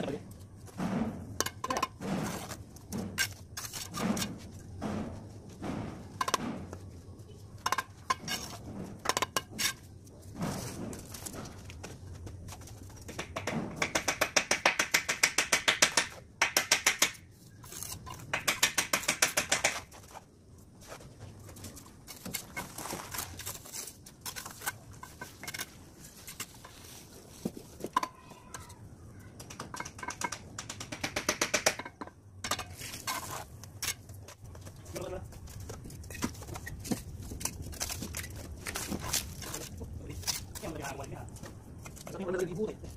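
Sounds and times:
steel trowel tapping bricks: 0:13.0 - 0:20.1.

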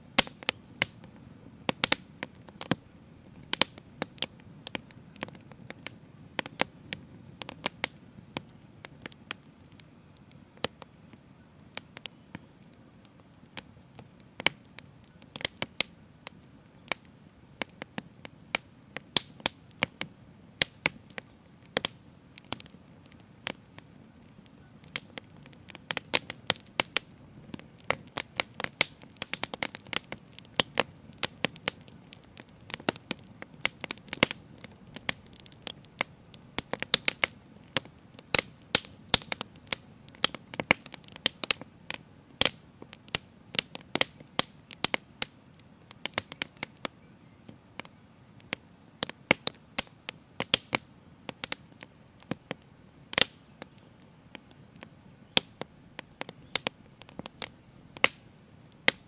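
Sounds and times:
fire crackling and popping: 0:00.0 - 0:59.0
low rumble of flames: 0:00.0 - 0:59.0.

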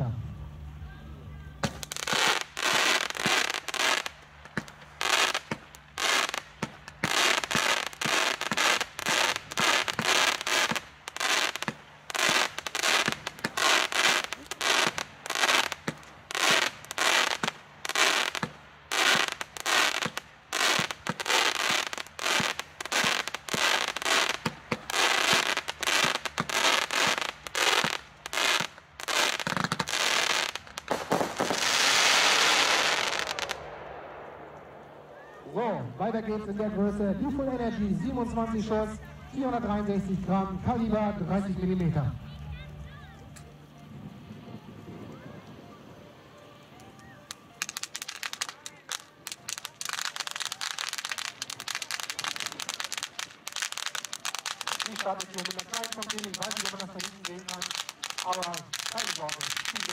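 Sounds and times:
firework bangs: 0:01.6 - 0:35.4, 0:47.3 - 0:59.9.

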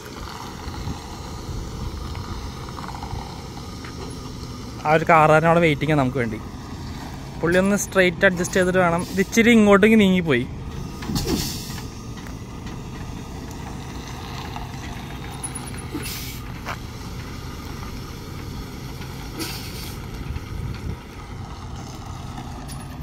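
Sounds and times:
diesel truck engine running: 0:00.0 - 0:23.0
air brakes hissing: 0:08.9 - 0:09.6, 0:10.7 - 0:12.2, 0:15.3 - 0:17.6, 0:19.2 - 0:20.1.

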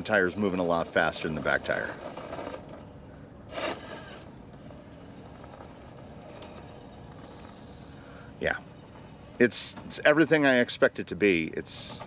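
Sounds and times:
toy car motor running: 0:03.5 - 0:04.4.

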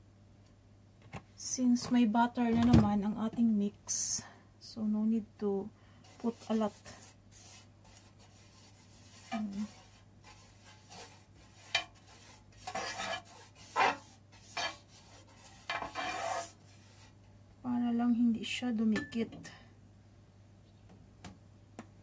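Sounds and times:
pastry brush strokes on griddle: 0:06.0 - 0:17.3.

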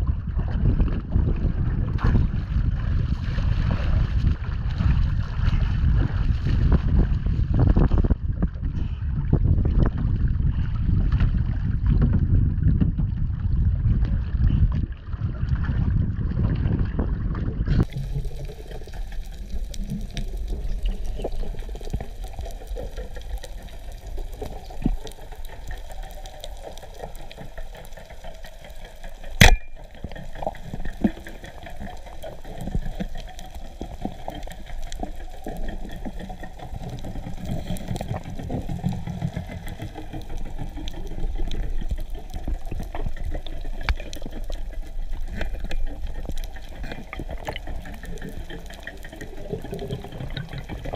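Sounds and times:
underwater bubbling rumble: 0:00.0 - 0:50.9
small crackling ticks: 0:17.8 - 0:50.9
sharp loud click: 0:29.4 - 0:29.8.

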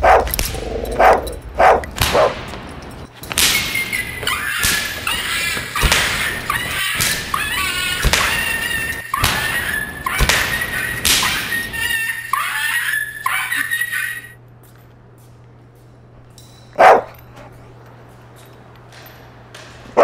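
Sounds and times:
dog barking: 0:00.0 - 0:00.3, 0:01.0 - 0:02.4, 0:16.8 - 0:17.2.

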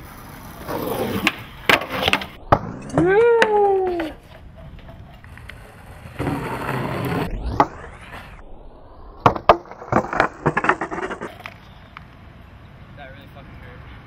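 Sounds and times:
skateboard wheels rolling on concrete: 0:00.0 - 0:14.0
skateboard clattering on asphalt: 0:09.2 - 0:12.2.

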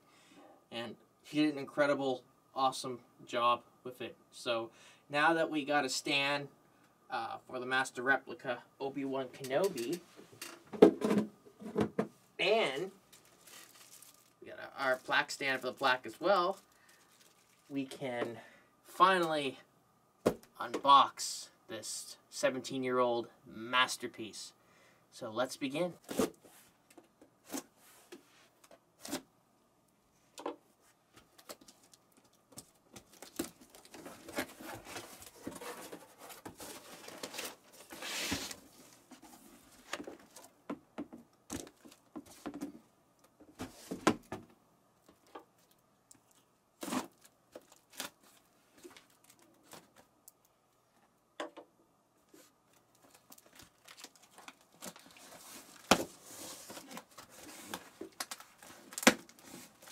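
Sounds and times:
packaging rustling and tearing: 0:13.1 - 0:15.1, 0:15.7 - 0:17.7, 0:31.3 - 0:39.1, 0:46.8 - 0:50.1, 0:52.7 - 0:59.9.

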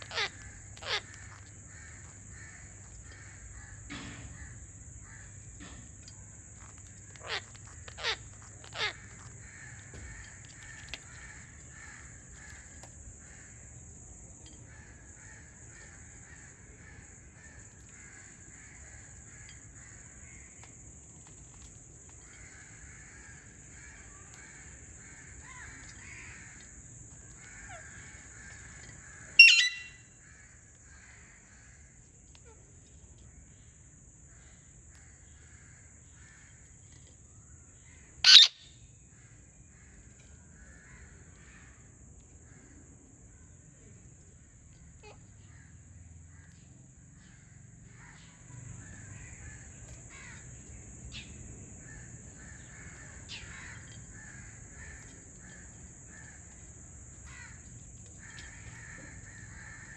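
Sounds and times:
harsh parakeet squawk: 0:00.0 - 0:01.3, 0:07.2 - 0:09.0, 0:29.4 - 0:30.0, 0:38.2 - 0:38.7
birds twittering: 0:00.0 - 0:13.7, 0:22.2 - 0:31.9, 0:34.4 - 0:41.8, 0:45.0 - 0:59.9
parakeet falling whistles: 0:29.4 - 0:30.0.

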